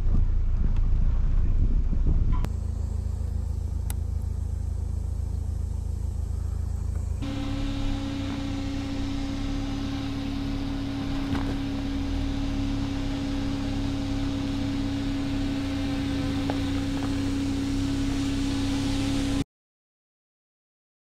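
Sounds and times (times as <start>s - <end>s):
vehicle engine hum: 0.0s - 19.4s
stones crunching: 11.1s - 11.7s.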